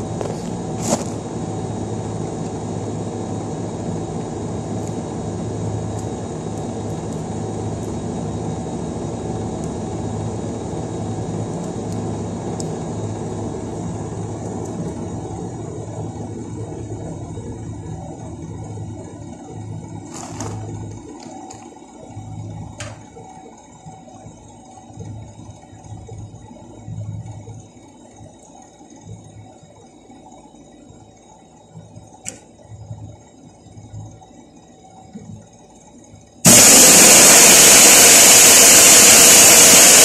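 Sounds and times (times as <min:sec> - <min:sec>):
air conditioner humming: 0:00.0 - 0:27.7.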